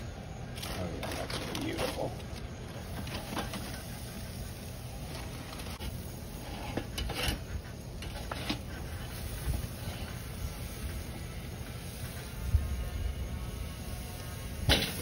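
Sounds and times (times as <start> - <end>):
metal utensils scraping grill grate: 0.6 - 11.0, 13.9 - 15.0.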